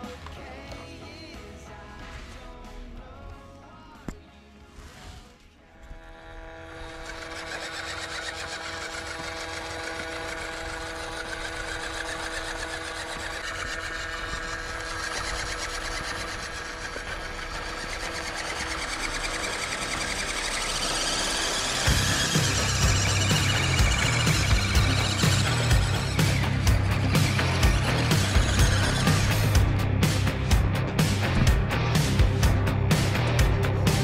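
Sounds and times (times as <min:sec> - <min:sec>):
small electric motor whirring: 0:05.1 - 0:30.3.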